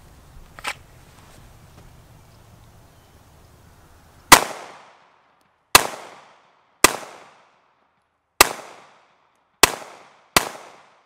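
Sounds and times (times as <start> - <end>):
pistol shots: 4.3 - 5.0, 5.7 - 7.5, 8.4 - 11.0.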